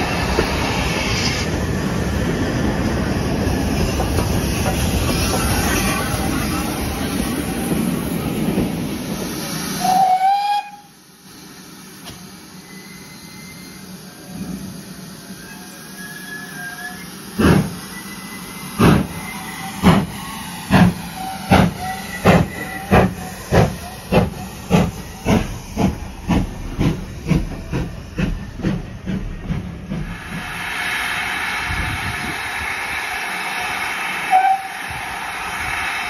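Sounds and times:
steam hiss: 0:00.0 - 0:36.0
steam locomotive exhaust chuffs: 0:14.7 - 0:36.0.

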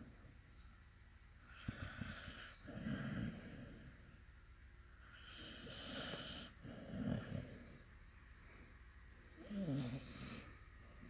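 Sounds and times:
dog snoring: 0:01.4 - 0:04.2, 0:05.0 - 0:07.9, 0:09.3 - 0:11.0.

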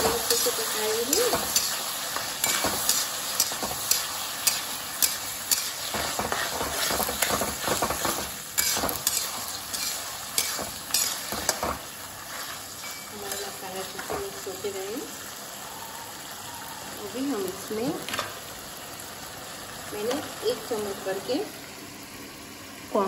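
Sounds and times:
spatula striking the pan: 0:00.0 - 0:11.8
metal spatula scraping: 0:00.0 - 0:14.2
vegetables sizzling in a wok: 0:00.0 - 0:23.0.

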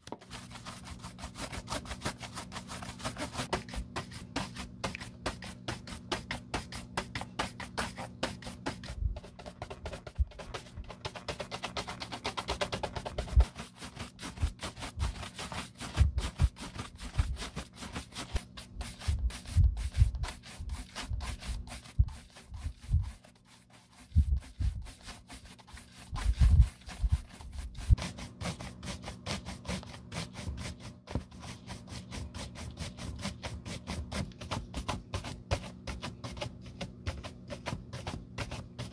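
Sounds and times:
shoe brush rubbing leather: 0:00.1 - 0:38.9.

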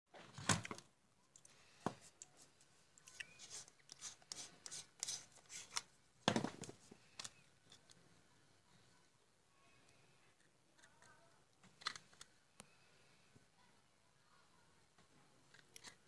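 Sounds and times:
hard plastic clicking and scraping: 0:10.4 - 0:12.7, 0:15.5 - 0:16.0.

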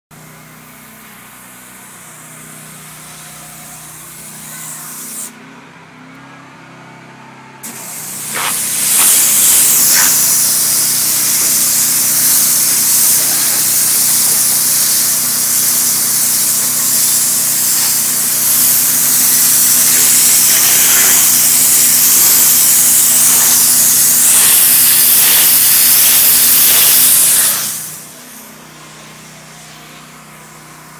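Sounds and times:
hissing air jet from nozzle: 0:00.8 - 0:05.4, 0:07.6 - 0:30.6
compressor humming: 0:07.6 - 0:30.9.

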